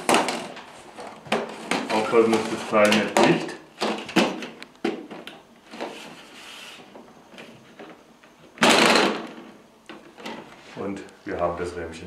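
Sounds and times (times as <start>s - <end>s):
plastic scrape and rattle: 5.7s - 6.9s.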